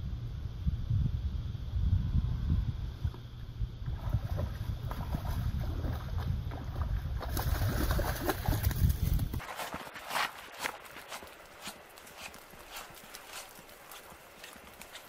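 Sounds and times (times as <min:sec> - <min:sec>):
wind rumbling on microphone: 0:00.0 - 0:09.6
fish splashing water: 0:04.0 - 0:15.0.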